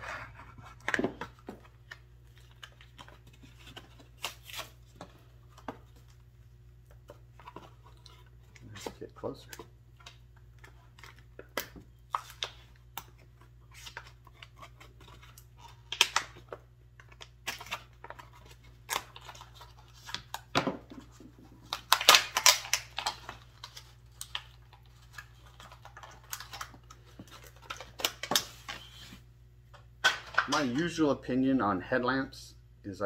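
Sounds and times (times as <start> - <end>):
packaging crinkling and clicking: 21.6 - 29.0.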